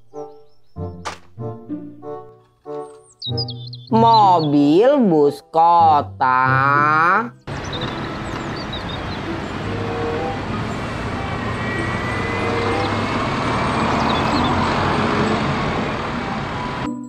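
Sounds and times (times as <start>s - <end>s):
bus engine under load: 7.5s - 16.9s
street traffic noise: 7.5s - 17.0s.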